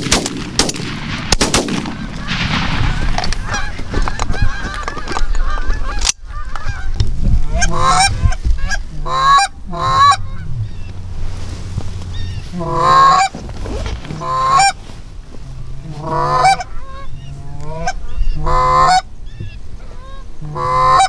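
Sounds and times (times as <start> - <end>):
shotgun shots: 0.0 - 3.2
geese honking: 1.8 - 21.0.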